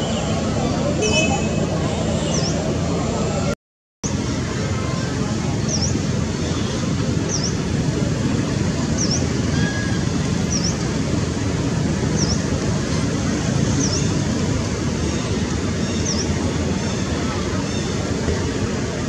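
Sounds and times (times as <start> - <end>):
low rumble of road traffic: 0.0 - 19.0.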